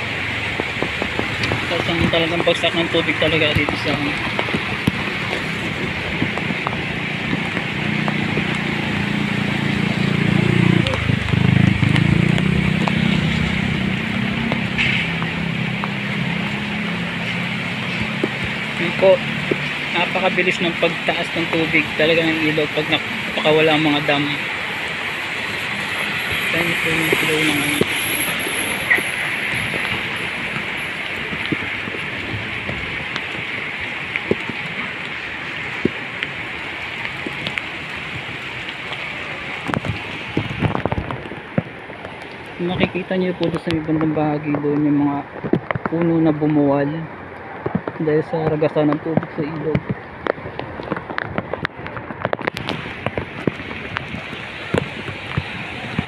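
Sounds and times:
heavy rain hissing: 0.0s - 43.3s
raindrops ticking close by: 0.0s - 56.0s
vehicle engine passing: 1.2s - 31.1s.

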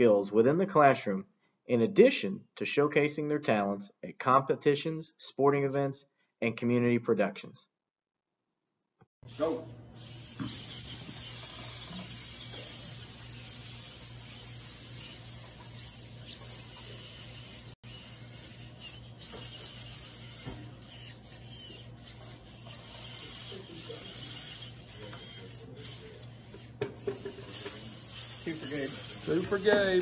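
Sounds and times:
robot motors whirring: 9.3s - 30.0s.

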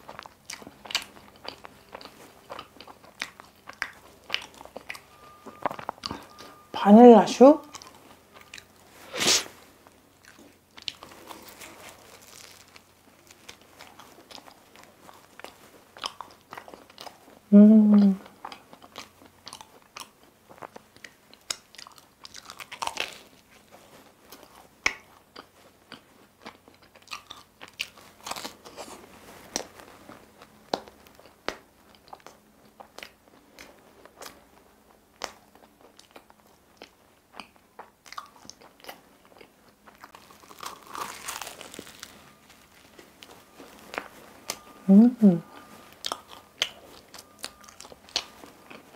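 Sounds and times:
person chewing pastry: 0.0s - 6.8s, 7.6s - 48.9s
biting into pastry: 10.2s - 17.2s, 18.0s - 34.4s, 35.2s - 44.7s.

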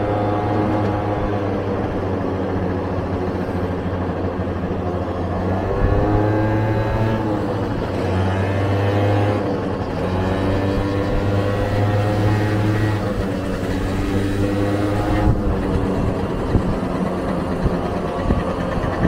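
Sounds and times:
scooter engine running: 0.0s - 19.0s
wind rumbling on microphone: 0.0s - 19.0s.

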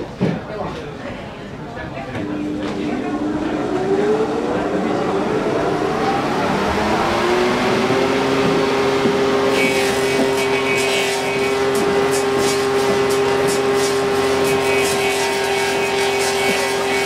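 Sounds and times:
lathe motor hum: 2.2s - 17.0s
lathe cutters ticking and hissing: 7.8s - 17.0s.

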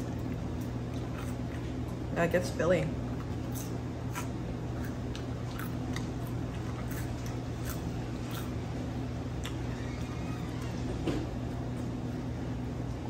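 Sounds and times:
crunchy chewing of fried food: 0.0s - 2.1s, 3.0s - 10.2s
steady low hum: 0.0s - 13.0s.

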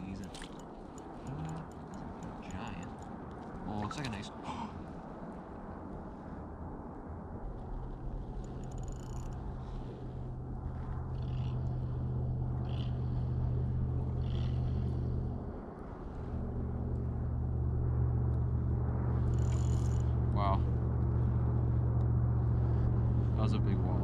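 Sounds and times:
low engine drone: 7.0s - 24.0s
faint clicks: 8.4s - 9.4s.

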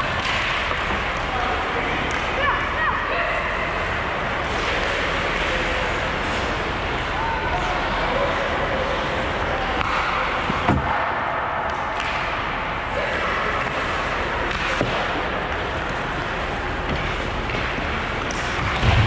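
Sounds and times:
skating and arena noise: 0.0s - 19.0s.

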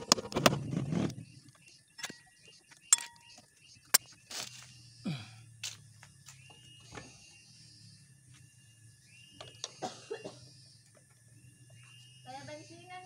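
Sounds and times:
pliers clicking and scraping metal: 2.9s - 3.2s.

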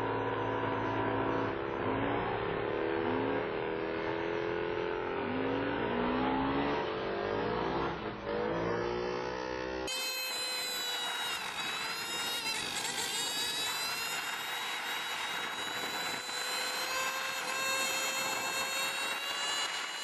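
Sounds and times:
motorbike engine high revs: 0.1s - 20.0s.

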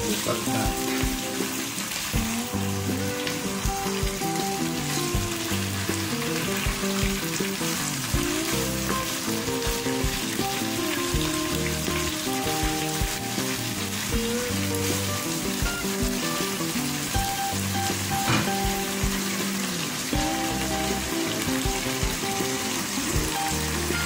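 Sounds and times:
soft background music: 0.0s - 24.0s
vegetables sizzling in a frying pan: 0.0s - 24.0s
utensils knocking on pan: 17.2s - 19.5s.

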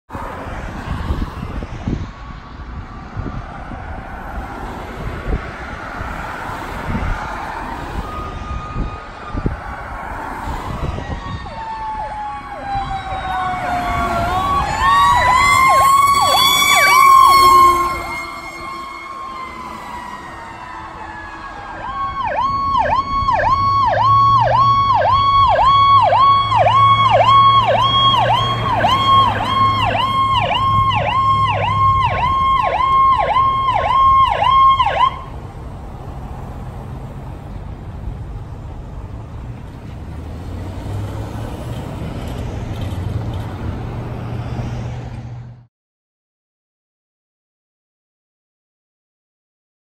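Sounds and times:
fire engine siren wailing: 0.1s - 37.5s
road traffic passing: 0.1s - 45.7s
electronic siren yelping: 5.9s - 35.4s.

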